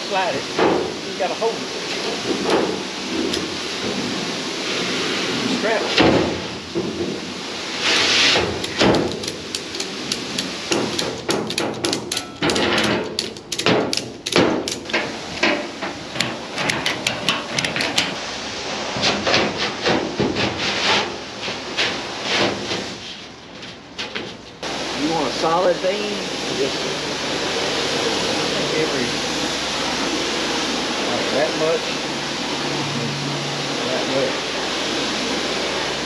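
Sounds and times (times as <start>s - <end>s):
ratchet strap clicking: 8.6s - 15.1s.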